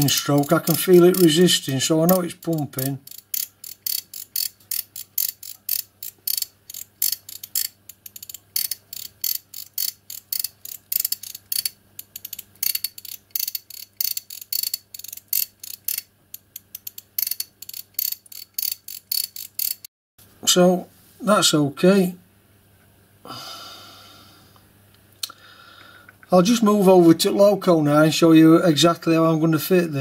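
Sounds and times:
ratchet pawls clicking: 0.0s - 19.9s.

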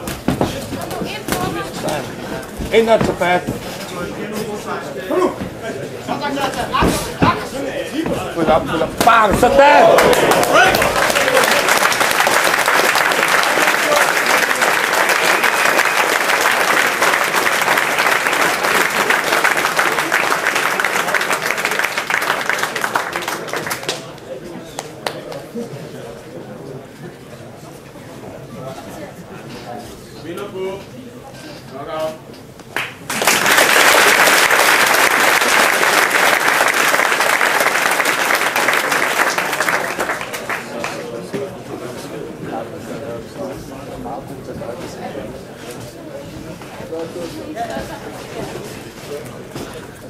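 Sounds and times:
crowd applauding and cheering: 9.6s - 24.1s, 32.8s - 41.0s.

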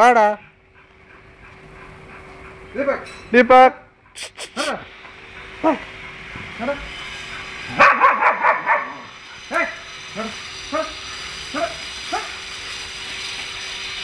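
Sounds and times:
dog barking: 7.7s - 9.1s, 12.1s - 12.4s.

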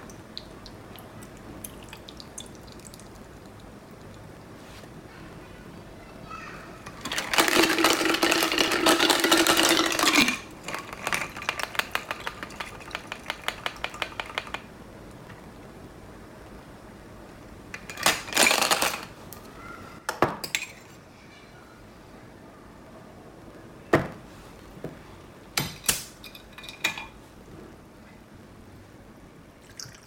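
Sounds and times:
ice and glassware clinking: 6.9s - 14.0s, 25.6s - 27.1s.

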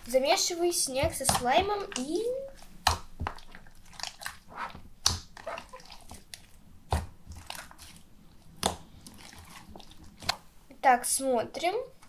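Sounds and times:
slime squelching: 0.0s - 10.9s
slime popping: 2.8s - 10.4s.

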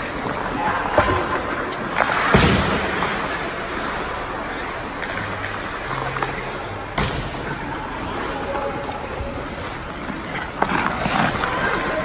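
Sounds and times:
faint voices: 3.1s - 12.0s.

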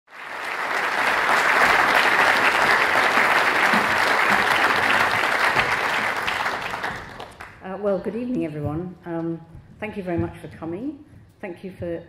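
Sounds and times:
audience applauding: 0.1s - 7.6s.

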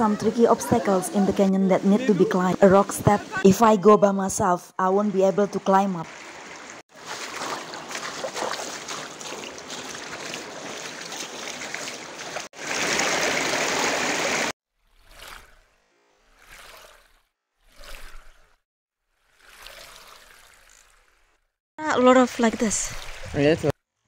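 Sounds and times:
stream rushing over rocks: 6.2s - 14.5s
footsteps crunching on wet gravel: 6.9s - 14.4s.

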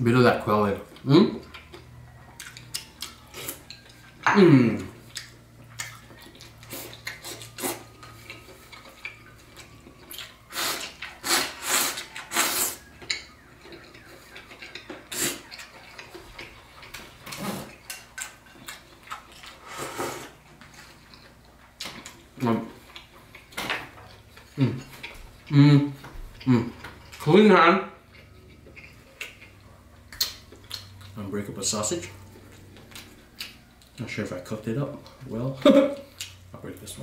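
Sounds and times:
person slurping soup: 10.5s - 12.8s, 19.6s - 20.4s.

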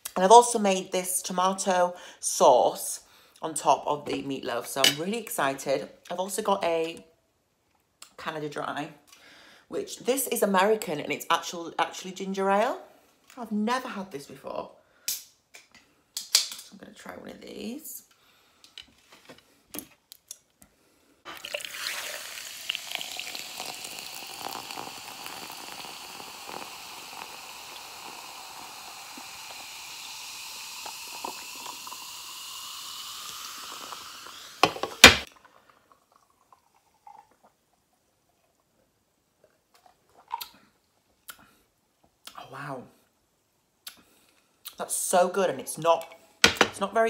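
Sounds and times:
fizzing: 21.3s - 37.6s
soda pouring into glass over ice: 21.3s - 38.4s.

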